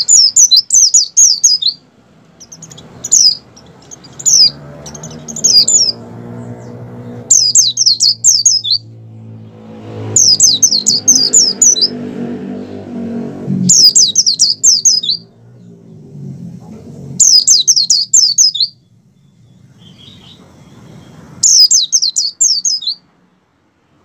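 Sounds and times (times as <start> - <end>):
bird chirping song: 0.0 - 23.6
faint low hum: 15.2 - 17.4.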